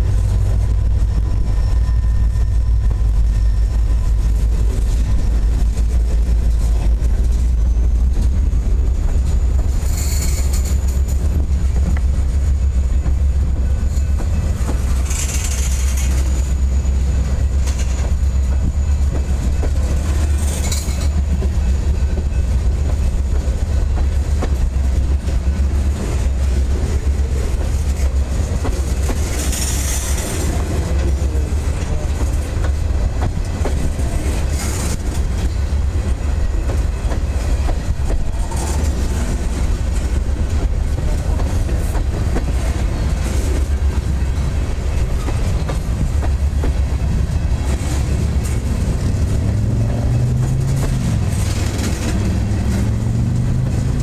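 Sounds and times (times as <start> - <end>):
train wheels rumbling on rail: 0.0 - 54.0
high-pitched wheel squeals: 0.9 - 4.4.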